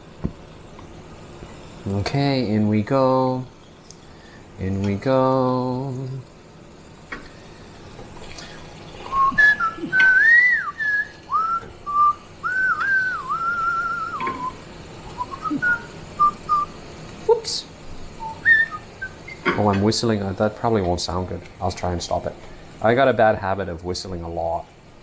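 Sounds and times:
man whistling a tune: 9.1s - 16.8s, 18.2s - 19.5s.

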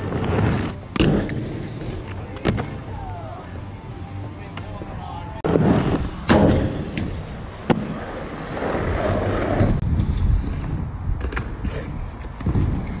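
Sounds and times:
inline skates clacking: 0.0s - 3.0s
wheels rolling over rough tarmac: 0.0s - 3.3s, 7.0s - 13.0s
wind on microphone: 8.6s - 13.0s.

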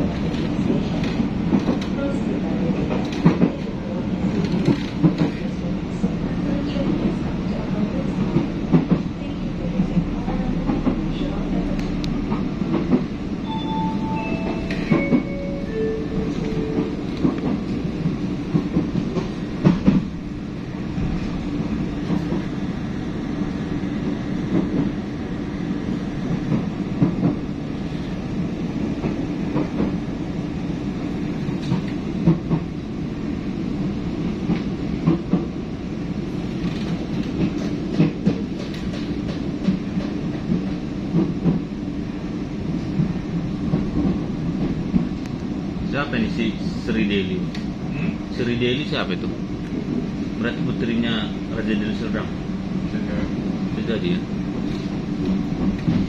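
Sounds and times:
wheels clacking on track: 0.0s - 6.1s
train low rumble: 0.0s - 56.0s.

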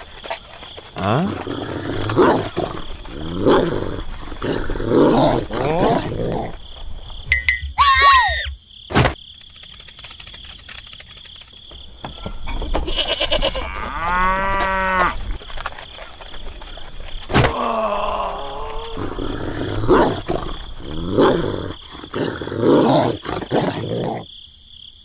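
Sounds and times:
high gliding animal call: 7.7s - 8.6s
short pitched animal cries: 7.8s - 8.6s
cow mooing: 13.0s - 15.2s.

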